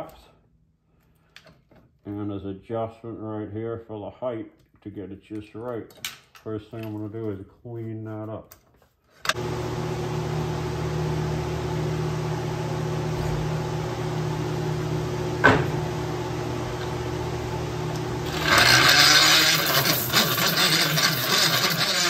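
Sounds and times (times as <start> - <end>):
power tool motor running: 9.3 - 22.0
grinder grinding rubber: 16.3 - 22.0.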